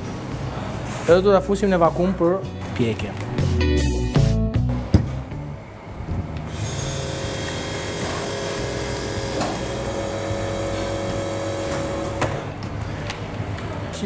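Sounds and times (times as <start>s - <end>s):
vacuum sealer pump running: 6.5s - 12.5s.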